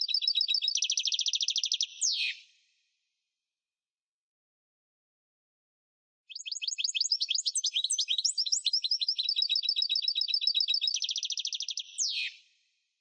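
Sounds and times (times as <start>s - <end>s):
goldfinch singing: 6.3s - 12.4s.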